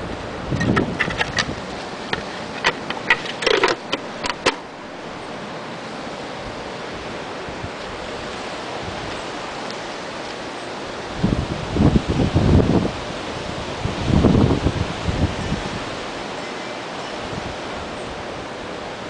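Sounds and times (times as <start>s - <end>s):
steady outdoor hiss: 0.0s - 19.0s
plastic part clicks and knocks: 0.6s - 4.6s.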